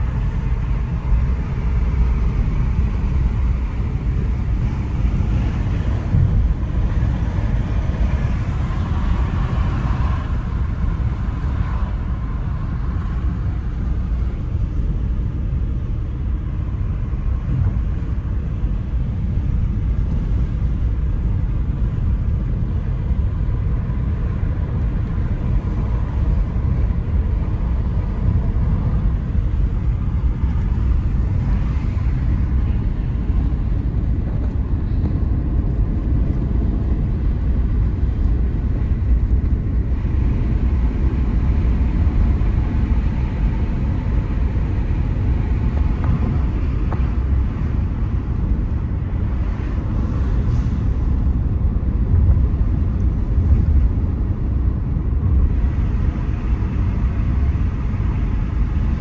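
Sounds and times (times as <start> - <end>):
car tyres and engine rumbling: 0.0 - 59.0.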